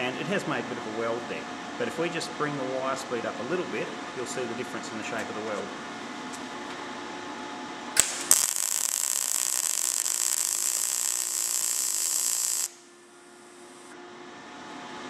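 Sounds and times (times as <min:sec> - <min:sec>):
welding arc pops: 0:08.0 - 0:12.8
welder arc crackling hiss: 0:08.0 - 0:12.9.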